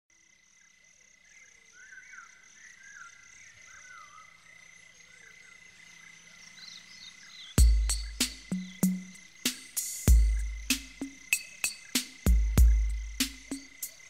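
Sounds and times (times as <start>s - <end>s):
high pulsed chirping: 7.6s - 14.0s.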